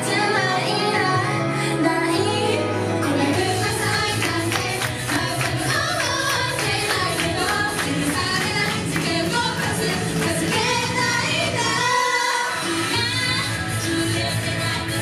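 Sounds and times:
women singing pop song: 0.0 - 15.0.

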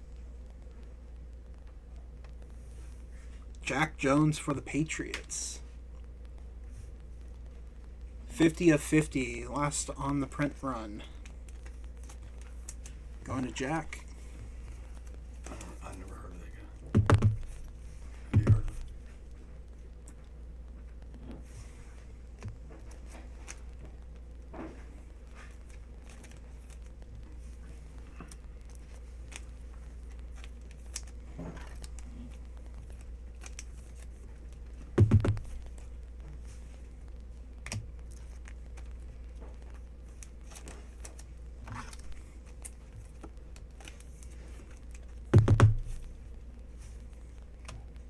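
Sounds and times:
cards and plastic rustling: 8.3 - 48.0
low hum: 10.3 - 33.4, 34.1 - 43.2
loud dull thumps: 16.8 - 17.6, 18.3 - 18.9, 35.0 - 35.5, 45.3 - 46.0.

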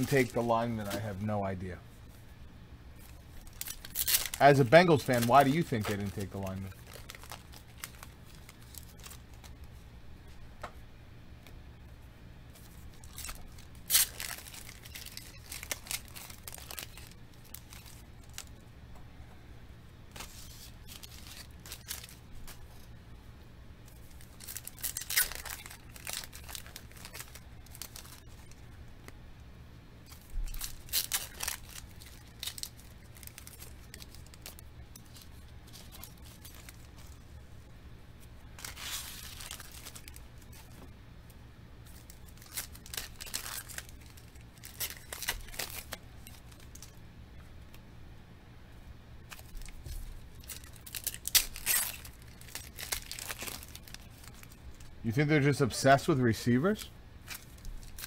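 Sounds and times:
cards being handled: 0.0 - 1.2, 3.0 - 10.8, 20.1 - 22.9, 23.9 - 29.2, 38.5 - 40.9, 41.9 - 47.0
foil wrappers crinkling and tearing: 0.0 - 1.5, 3.0 - 9.6, 12.6 - 18.6, 20.1 - 22.9, 23.9 - 28.7, 30.1 - 37.4, 38.5 - 40.9, 41.8 - 47.0, 49.3 - 58.0.

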